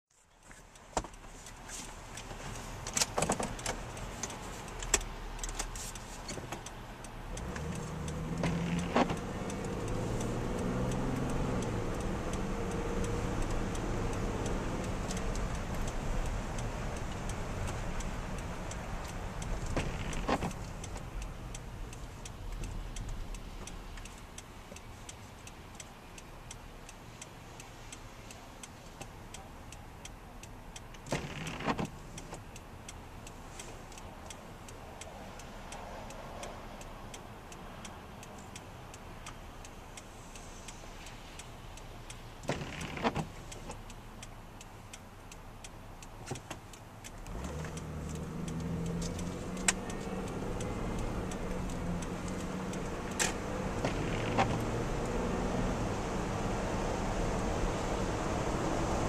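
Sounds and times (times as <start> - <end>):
tyres on wet road: 0.1 - 59.0
car engine: 0.2 - 59.0
raindrops tapping windshield: 7.3 - 25.2, 31.0 - 32.4, 42.2 - 43.9, 46.2 - 59.0.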